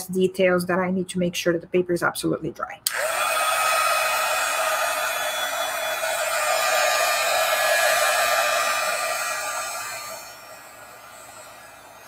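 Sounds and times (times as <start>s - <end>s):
hair dryer running: 2.9s - 12.0s.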